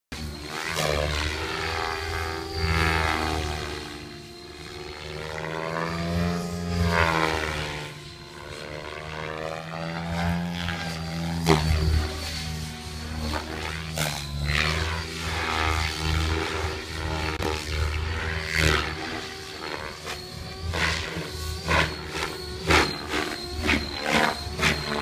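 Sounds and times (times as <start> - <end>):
electric motor whine: 0.1 - 25.0
helicopter rotor blades humming: 0.1 - 25.0.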